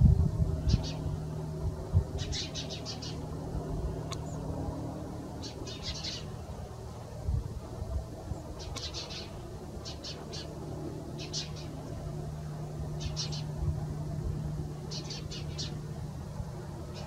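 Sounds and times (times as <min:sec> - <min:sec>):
low outdoor rumble: 0:00.0 - 0:17.0
bird chirping: 0:02.2 - 0:03.3, 0:05.4 - 0:06.4, 0:08.3 - 0:10.6, 0:11.2 - 0:11.8, 0:13.0 - 0:13.6, 0:14.9 - 0:15.8.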